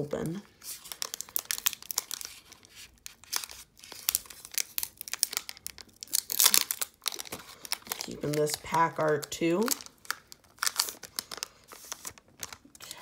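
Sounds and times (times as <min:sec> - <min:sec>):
foil wrapper crinkling and tearing: 0:00.1 - 0:13.0.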